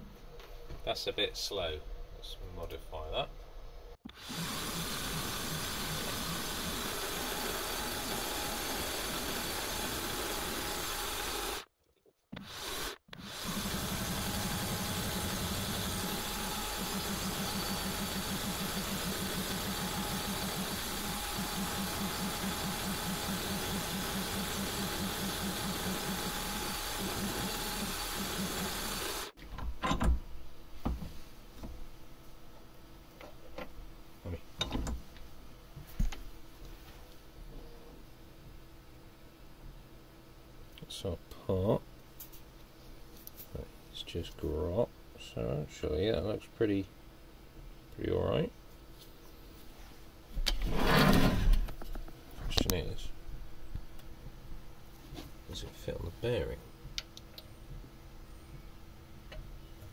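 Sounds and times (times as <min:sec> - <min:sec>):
milling machine whirring and rattling: 0:04.2 - 0:11.6, 0:12.6 - 0:29.4.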